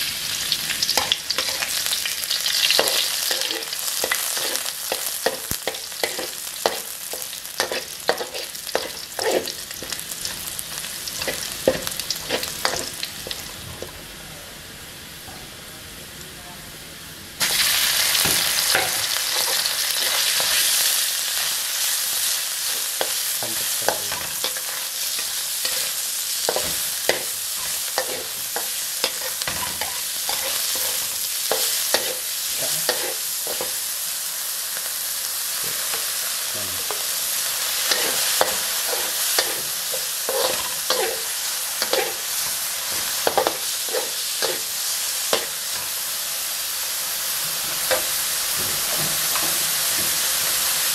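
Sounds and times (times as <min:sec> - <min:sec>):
meat sizzling in a wok: 0:00.0 - 0:16.0, 0:16.8 - 0:50.9
metal spatula scraping a wok: 0:23.9 - 0:33.8, 0:37.8 - 0:45.9.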